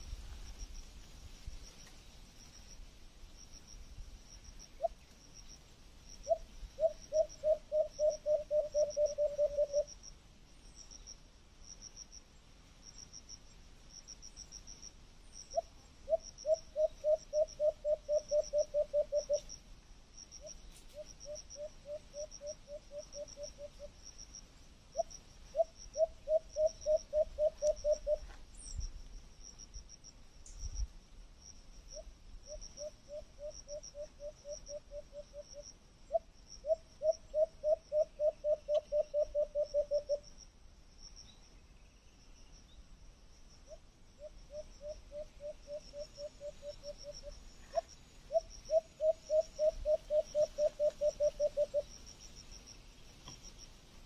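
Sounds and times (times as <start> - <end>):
cricket chirping: 0.0 - 54.0.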